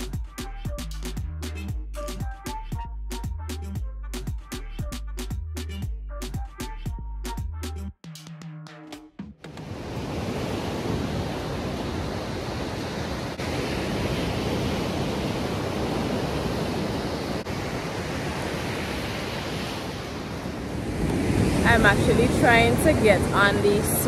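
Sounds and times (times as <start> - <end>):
music: 0.0 - 9.7
sea surf breaking on beach: 9.5 - 24.0
wind on microphone: 9.6 - 24.0.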